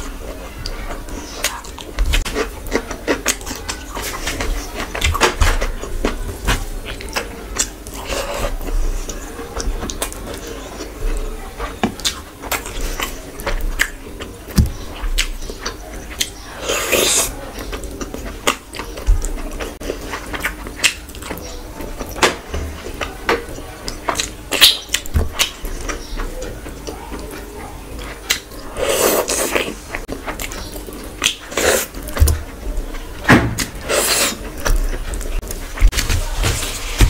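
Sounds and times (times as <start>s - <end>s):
wet chewing and lip smacks: 23.8s - 32.2s.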